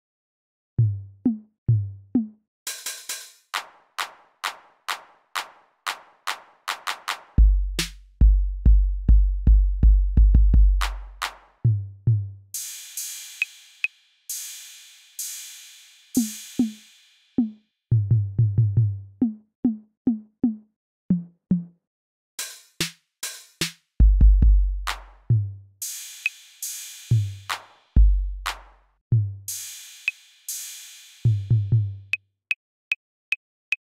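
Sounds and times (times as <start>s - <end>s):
electronic drum machine beat: 16.2s - 17.5s.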